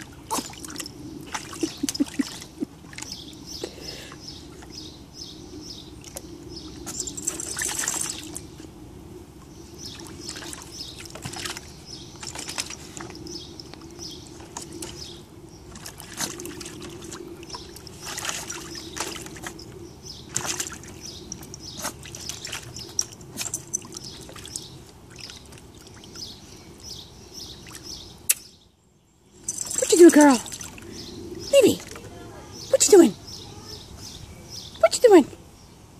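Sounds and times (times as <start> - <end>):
dog splashing in water: 0.0 - 4.8, 6.0 - 8.6, 9.8 - 26.4, 27.5 - 28.0, 29.5 - 32.2.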